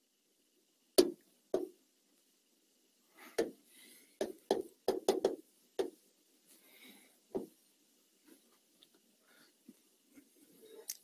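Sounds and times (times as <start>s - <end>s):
taps of writing on board: 1.0s - 1.8s, 3.4s - 3.6s, 4.2s - 6.0s.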